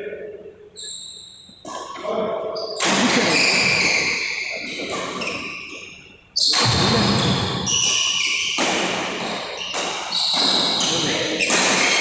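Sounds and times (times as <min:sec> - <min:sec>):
racket hitting shuttlecock: 0:06.5 - 0:12.0.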